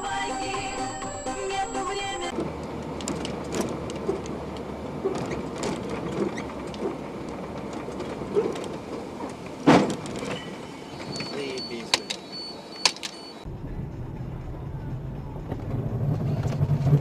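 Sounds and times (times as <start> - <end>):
music: 0.0 - 2.3, 13.5 - 15.7
bus engine rumble: 0.0 - 17.0
cabin rattling and clicking: 3.0 - 10.5.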